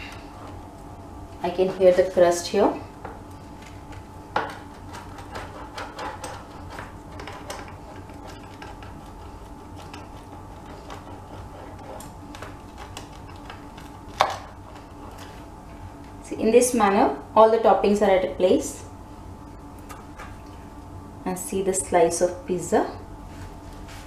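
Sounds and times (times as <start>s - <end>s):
pizza cutter crackling through crust: 3.4s - 16.2s.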